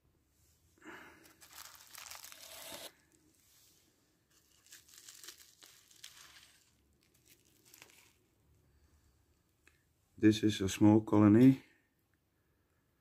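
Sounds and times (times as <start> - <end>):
bubble wrap crinkling: 1.1 - 3.3, 4.2 - 8.5
packaging rustling: 1.2 - 3.1, 4.3 - 8.4.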